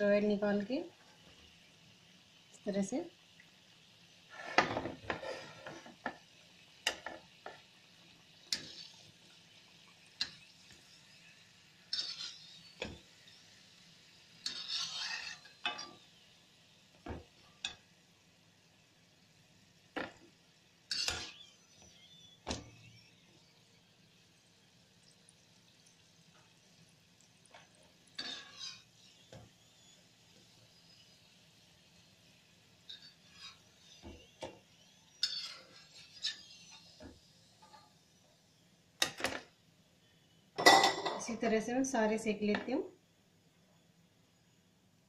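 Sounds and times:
faint frying sizzle: 0.0 - 45.0
metal skimmer scraping pan: 11.9 - 13.0, 14.4 - 16.0, 20.9 - 21.4, 28.2 - 28.9, 35.2 - 37.0.

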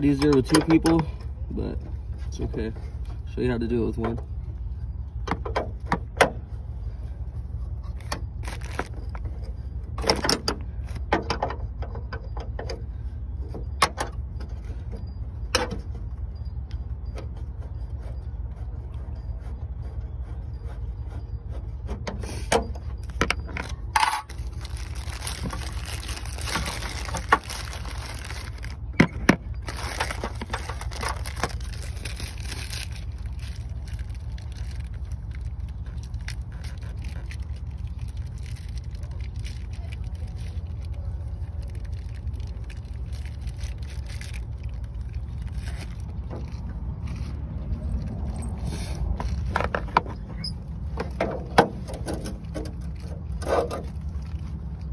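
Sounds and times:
low rumble: 22.7 - 54.9.

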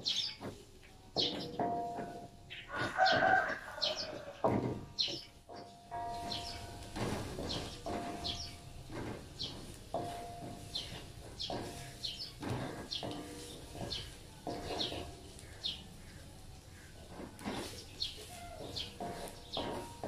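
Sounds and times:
bird chirping: 0.0 - 0.6, 1.2 - 1.7, 2.5 - 20.0
wok ringing: 5.6 - 15.5, 18.2 - 20.0
spatula scraping a wok: 6.1 - 20.0.

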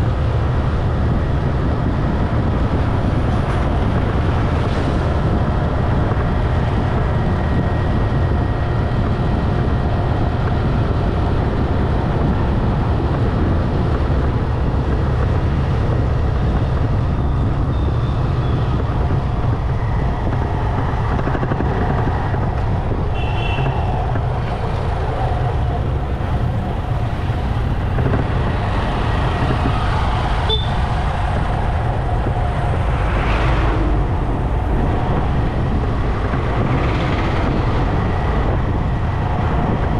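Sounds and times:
low wind rumble: 0.0 - 39.9
road traffic: 0.0 - 39.9.

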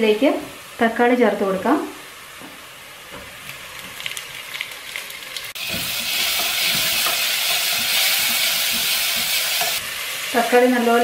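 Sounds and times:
tomato frying loudly: 0.0 - 11.0
onions sizzling in oil: 2.2 - 11.0
stirring knocks: 5.6 - 9.8.

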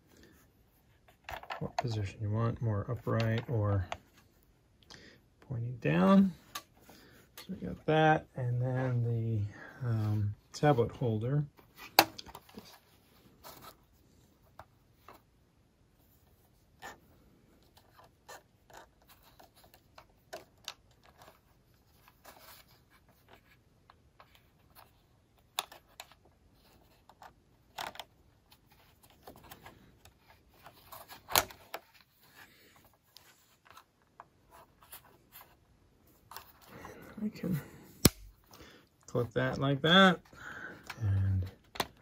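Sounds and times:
plastic parts clicking and rattling: 1.1 - 1.9, 22.0 - 35.5.

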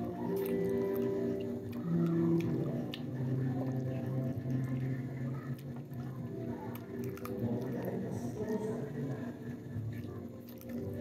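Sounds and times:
low droning tones: 0.0 - 11.0
person chewing and sucking: 4.5 - 8.1.

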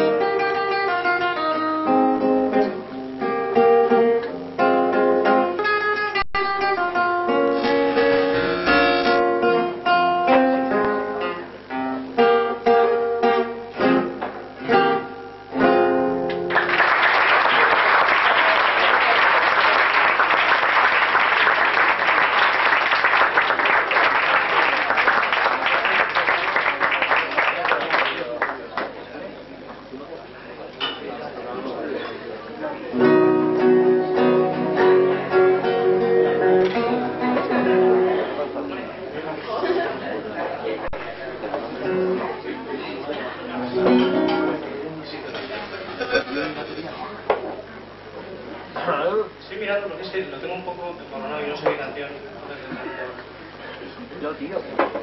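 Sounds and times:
acoustic guitar melody: 0.0 - 16.7, 32.9 - 38.8, 40.9 - 42.4, 43.5 - 44.9
audience applause: 16.5 - 28.9.

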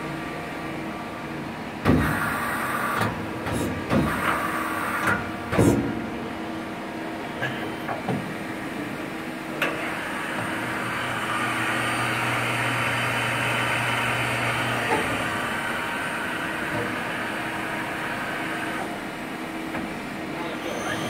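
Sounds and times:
lathe motor hum: 9.6 - 19.5.

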